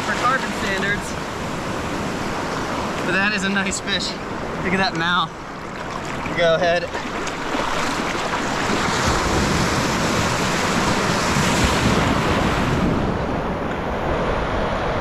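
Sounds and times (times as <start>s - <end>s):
ocean surf breaking: 0.0s - 15.0s
wind rumbling on microphone: 7.1s - 15.0s.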